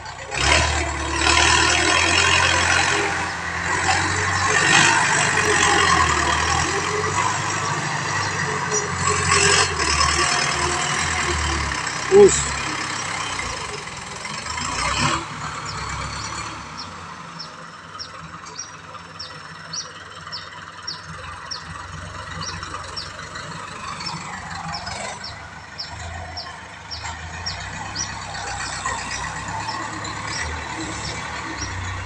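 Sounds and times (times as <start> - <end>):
tractor engine running: 0.0 - 32.0
short high squeak: 12.1 - 12.5.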